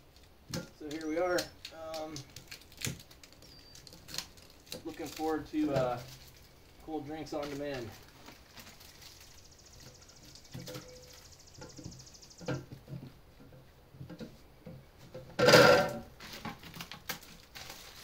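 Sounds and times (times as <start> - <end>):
plastic packing crinkling: 0.2 - 11.1, 16.2 - 18.0.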